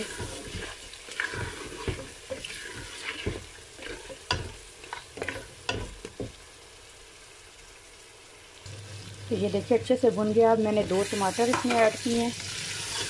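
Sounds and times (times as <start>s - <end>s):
spatula scraping a pot: 0.0s - 5.9s, 12.7s - 13.0s
meat sizzling in hot oil: 0.0s - 13.0s.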